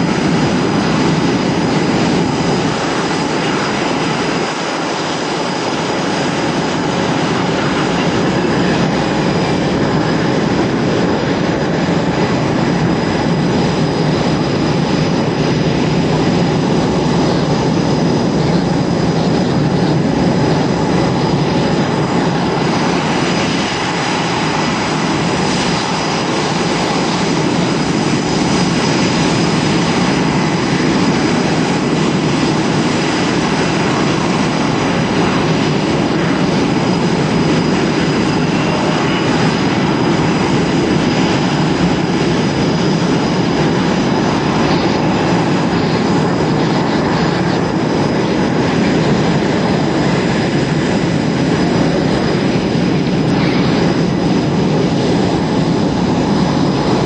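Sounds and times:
high jet whine: 0:00.0 - 0:57.0
jet engine roar: 0:00.0 - 0:57.0.

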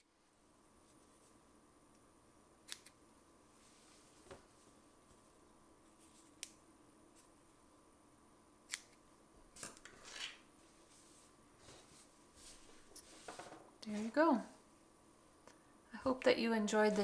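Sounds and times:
fabric rustling: 0:10.0 - 0:14.4.

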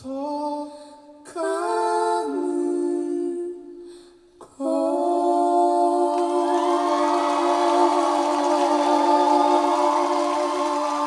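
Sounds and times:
sustained sung notes over speakers: 0:05.8 - 0:11.0.

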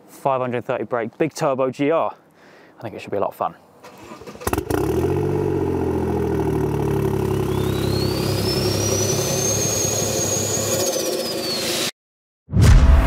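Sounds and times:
car engine idling: 0:05.2 - 0:10.1.

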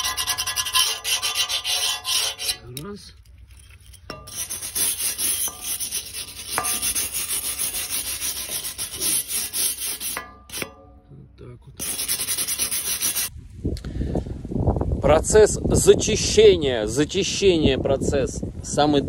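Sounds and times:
brush scrubbing rusty metal: 0:00.0 - 0:11.0, 0:11.8 - 0:13.3.

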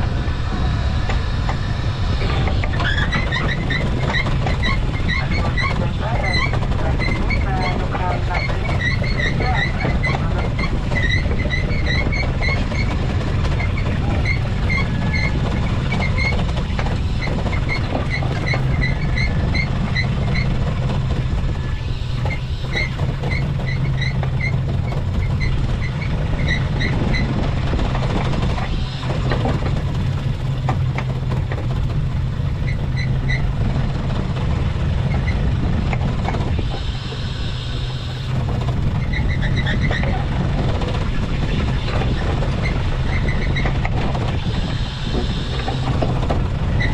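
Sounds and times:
boat engine droning: 0:00.0 - 0:46.9
short high squeaks: 0:02.2 - 0:30.0, 0:32.6 - 0:33.6, 0:35.0 - 0:40.5.

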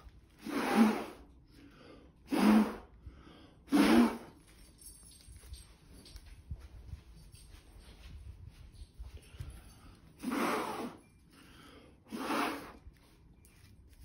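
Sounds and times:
person blowing puffs of breath: 0:00.4 - 0:04.4, 0:09.7 - 0:12.8.

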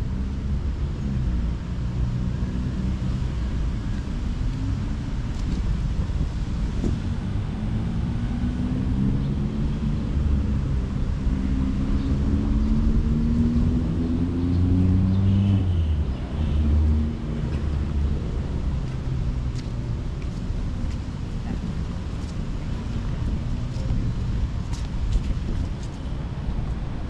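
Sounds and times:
steady low rumble: 0:17.2 - 0:27.0.

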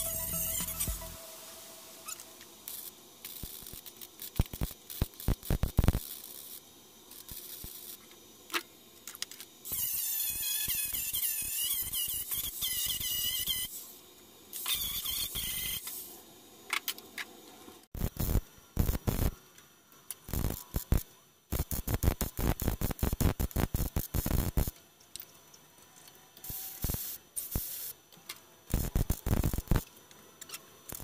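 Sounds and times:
angle grinder whining: 0:00.0 - 0:01.6
welder crackling: 0:00.0 - 0:16.2, 0:18.0 - 0:19.4, 0:20.1 - 0:24.8, 0:26.4 - 0:28.0, 0:28.7 - 0:30.0.

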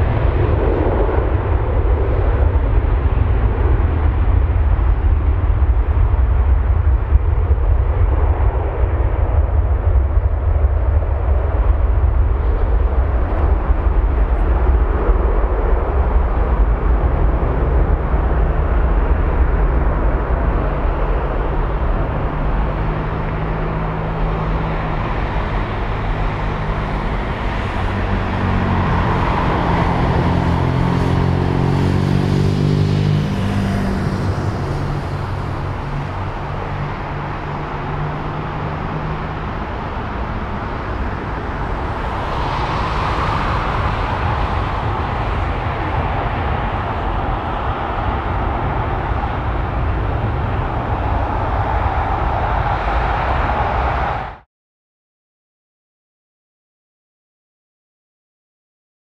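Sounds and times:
jet engines rumbling: 0:00.0 - 0:54.5.

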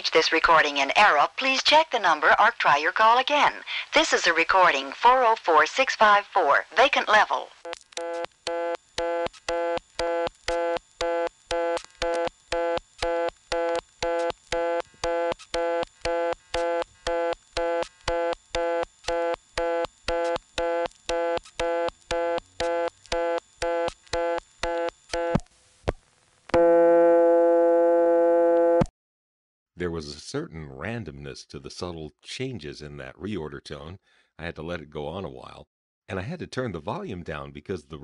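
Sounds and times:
pulsing two-tone telephone signal: 0:08.0 - 0:25.4, 0:26.6 - 0:28.9
steady telephone tone: 0:08.0 - 0:25.4, 0:26.5 - 0:28.9.

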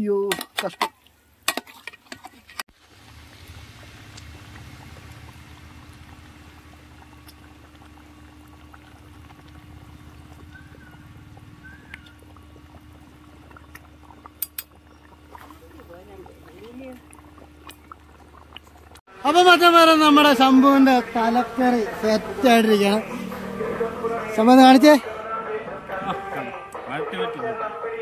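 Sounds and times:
pot of curry bubbling: 0:02.6 - 0:24.9.

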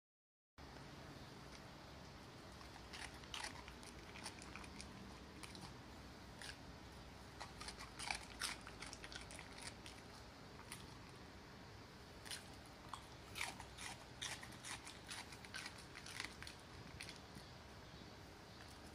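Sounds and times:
dog crunching cucumber: 0:02.4 - 0:11.2, 0:12.2 - 0:17.6.

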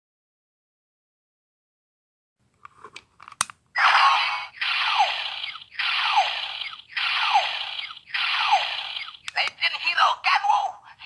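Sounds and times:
toy electronic hissing pulse: 0:04.6 - 0:09.3.

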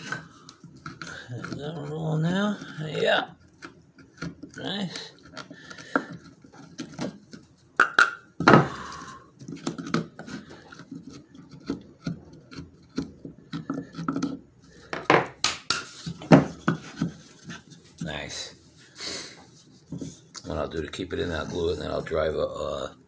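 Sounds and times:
wood scraping on wood: 0:00.0 - 0:07.7, 0:08.5 - 0:18.6, 0:19.5 - 0:22.4
wood knocking on wood: 0:07.8 - 0:08.8, 0:12.9 - 0:15.6, 0:16.2 - 0:17.2.

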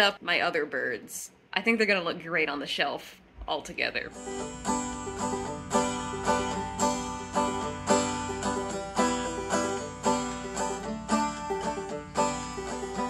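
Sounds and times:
plucked banjo tune: 0:04.1 - 0:13.0.

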